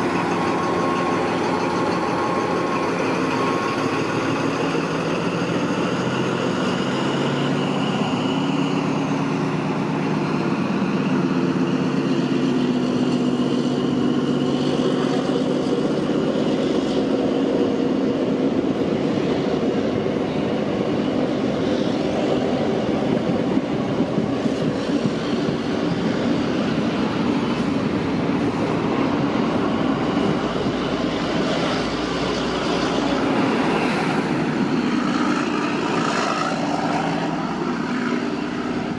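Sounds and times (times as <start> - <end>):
train carriages clattering on rails: 0.0 - 9.0
diesel engine hum: 0.0 - 38.9.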